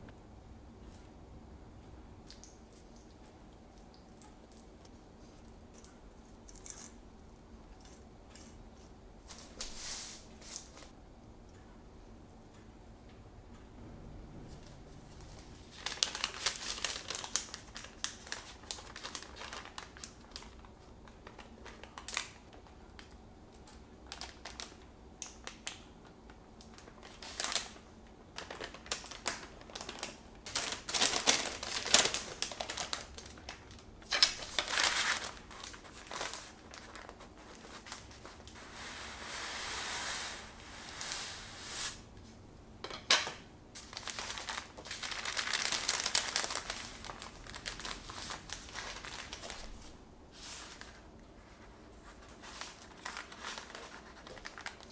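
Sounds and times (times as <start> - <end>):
baking paper crinkling: 15.2 - 25.9, 26.7 - 42.0, 43.8 - 54.9.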